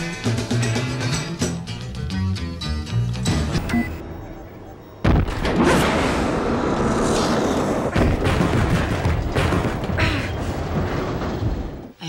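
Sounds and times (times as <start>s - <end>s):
action film music: 0.0s - 10.8s
loud bangs and impacts: 5.0s - 11.9s.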